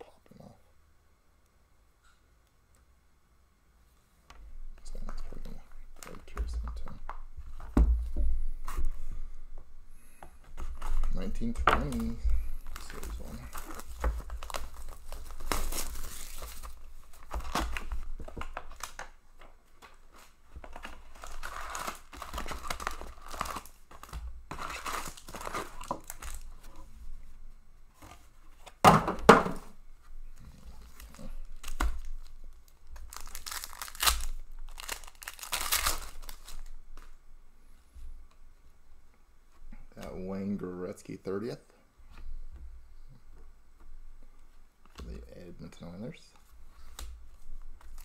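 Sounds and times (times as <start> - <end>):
foil wrappers tearing and crinkling: 10.7 - 19.1, 19.8 - 26.8, 30.6 - 37.2.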